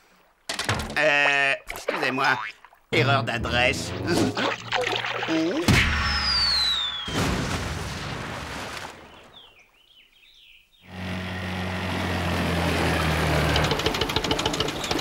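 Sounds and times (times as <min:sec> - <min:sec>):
cartoon falling whistle: 0:05.8 - 0:07.4
faint bird chirps: 0:06.1 - 0:07.2
motorboat humming: 0:10.8 - 0:15.0.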